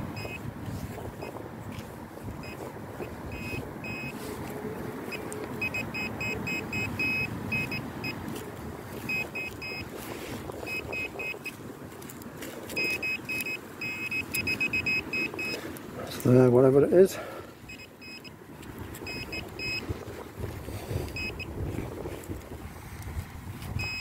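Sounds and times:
pinpointer beeping: 0.1 - 0.5, 2.4 - 4.2, 5.1 - 8.2, 9.1 - 10.0, 10.6 - 11.6, 12.7 - 15.6, 17.7 - 18.4, 19.0 - 19.9, 21.1 - 21.5, 23.8 - 24.0.

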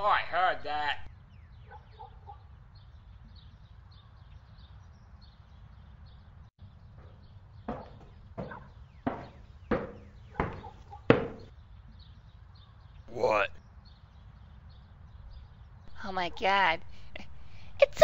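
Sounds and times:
faint birds chirping: 0.0 - 18.0
sharp taps: 7.7 - 11.5.

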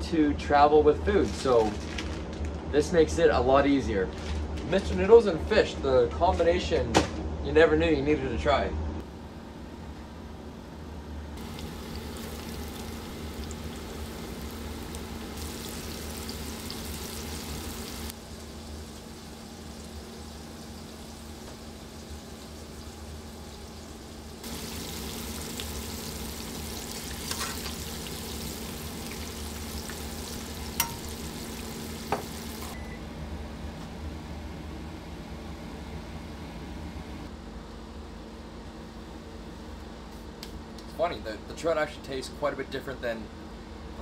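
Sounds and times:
fish sizzling in hot oil: 11.4 - 32.8.

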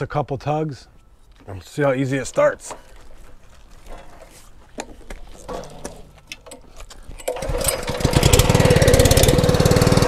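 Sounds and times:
handling clicks and knocks: 2.2 - 8.4
recoil starter pull: 5.4 - 10.0
small engine running: 7.3 - 10.0.

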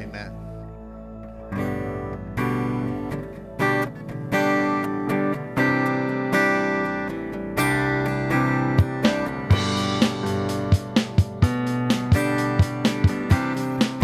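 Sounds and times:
acoustic guitar strumming: 1.4 - 14.0.

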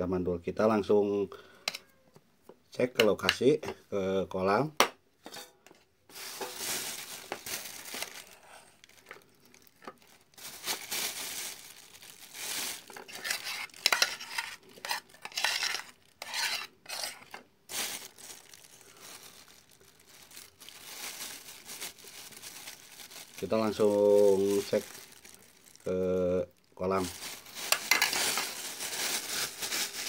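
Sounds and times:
rustling: 6.1 - 25.9, 26.9 - 30.0
utensils clinking and scraping: 12.9 - 17.4, 27.6 - 28.6.

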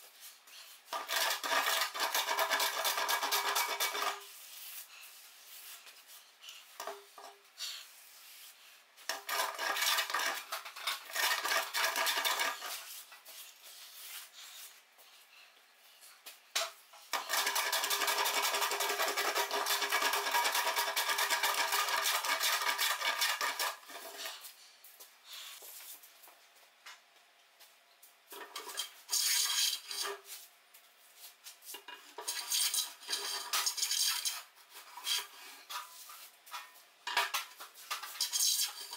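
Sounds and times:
hand plane shaving wood: 0.9 - 4.2, 9.1 - 13.0, 17.2 - 24.2.

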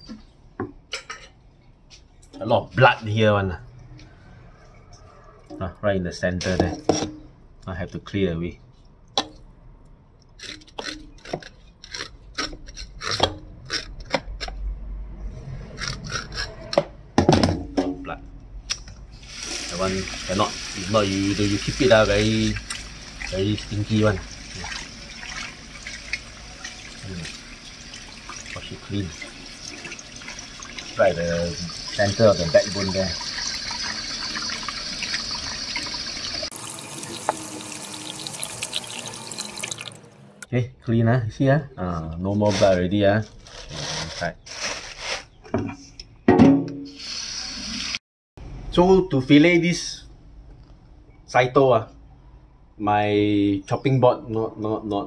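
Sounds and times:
knife scraping fish belly: 10.4 - 14.6, 15.8 - 16.8
tap water running into sink: 19.3 - 40.1.

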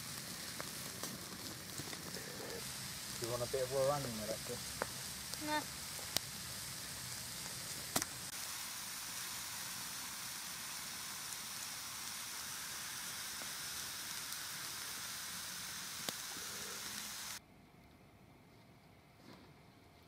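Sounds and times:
food sizzling in a pan: 0.0 - 17.4
sharp pops: 4.6 - 6.4, 7.4 - 8.3, 16.0 - 16.3.

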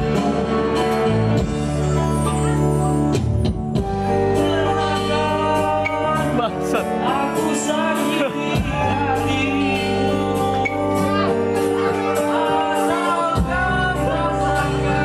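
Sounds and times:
electronic keyboard chords: 0.0 - 15.0
man singing into a microphone: 4.3 - 15.0.

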